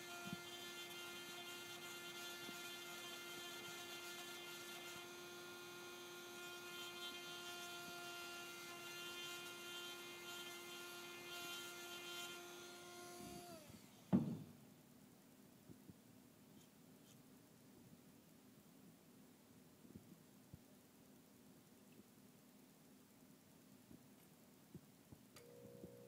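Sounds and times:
electric fan motor humming: 0.0s - 14.3s, 25.4s - 26.0s
sharp knock: 14.1s - 14.5s.

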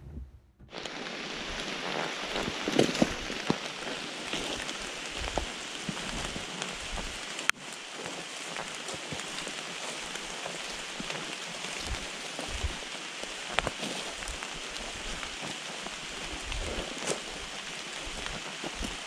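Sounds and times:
low thuds: 0.0s - 0.7s
light rain on leaves: 0.7s - 19.0s
raindrop clicks: 0.7s - 19.0s.

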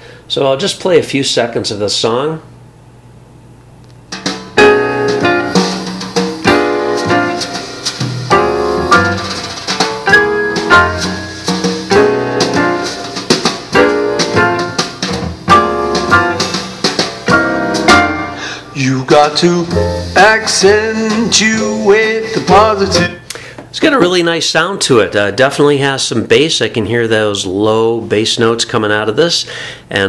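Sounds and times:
song with piano and drums: 4.1s - 23.5s.

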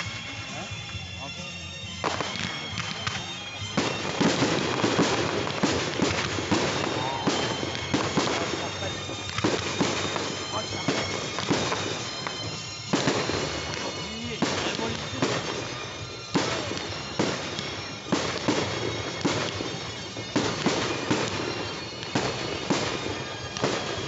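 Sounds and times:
fireworks bangs: 0.0s - 24.0s.

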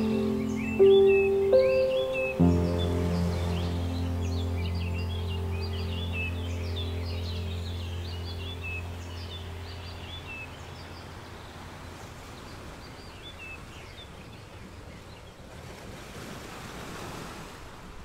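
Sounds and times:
low steady hum: 0.0s - 12.8s
small birds chirping: 0.0s - 15.5s
steady outdoor noise: 0.0s - 18.0s.

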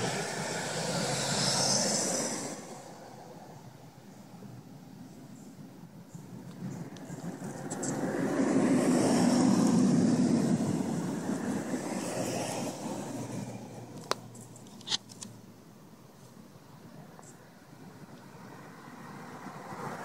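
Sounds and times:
vehicle passing: 0.0s - 3.7s, 6.3s - 14.4s, 17.6s - 20.0s.

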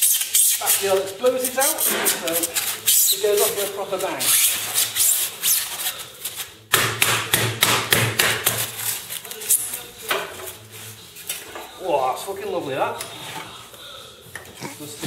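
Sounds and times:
polystyrene scraping: 0.0s - 6.7s, 8.6s - 11.5s.

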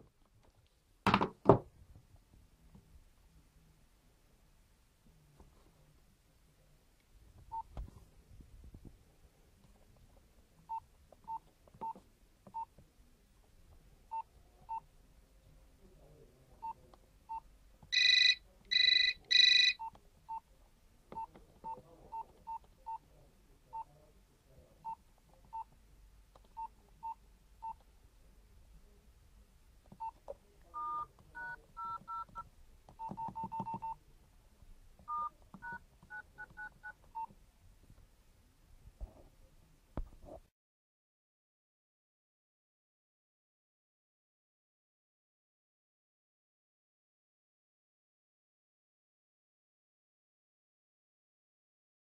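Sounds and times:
phone key beeps: 17.9s - 20.4s, 30.8s - 32.4s, 33.0s - 34.0s, 35.1s - 37.3s.

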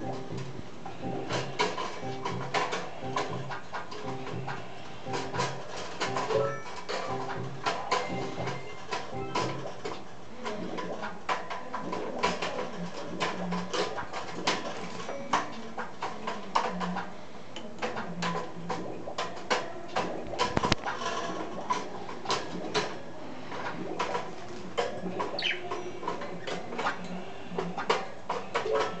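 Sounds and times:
soft budgie chatter: 24.4s - 28.0s.

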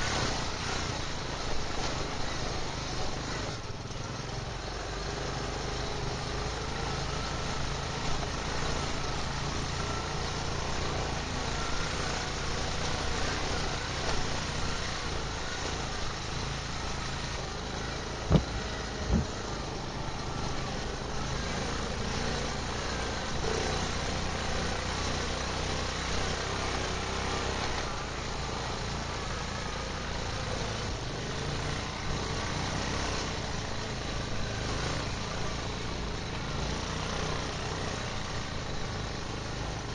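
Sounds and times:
quad engine running: 0.0s - 39.9s.

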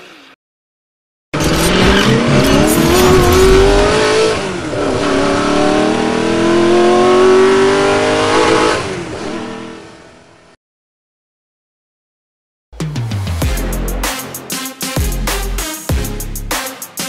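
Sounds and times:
car engine accelerating: 1.4s - 10.0s.

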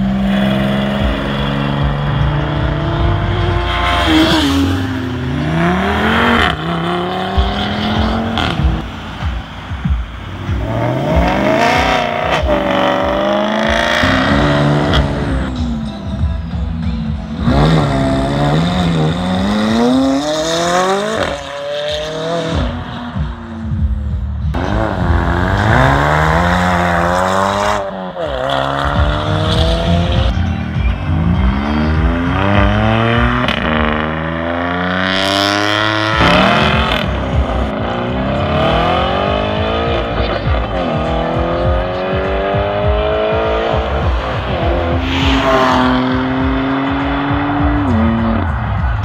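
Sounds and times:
car engine revving hard: 0.0s - 8.8s, 10.5s - 15.6s, 24.6s - 30.4s, 31.5s - 48.4s.

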